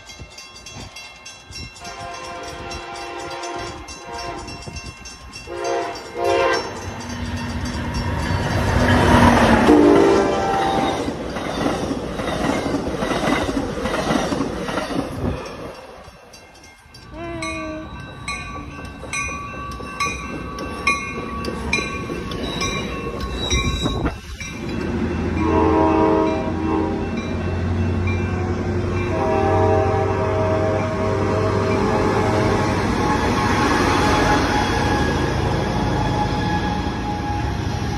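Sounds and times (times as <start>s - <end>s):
crossing bell dinging: 0.0s - 12.8s, 14.5s - 37.5s
train cars rumbling on rails: 0.0s - 37.9s
train horn: 1.8s - 4.8s, 5.5s - 6.8s, 9.6s - 11.1s, 25.4s - 27.2s, 29.0s - 37.9s.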